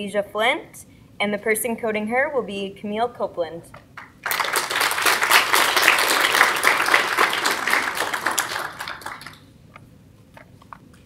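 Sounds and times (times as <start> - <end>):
audience applauding: 4.0 - 9.5.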